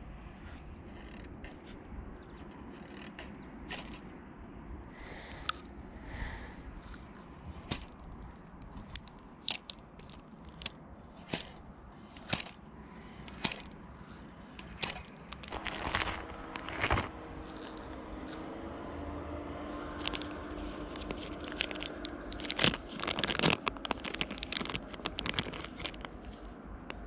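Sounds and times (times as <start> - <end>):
sharp clicks and ticks: 0.9 - 4.2, 7.7 - 18.0, 19.9 - 27.0
plastic packet crinkling: 7.6 - 13.8, 14.4 - 17.9, 19.8 - 27.0.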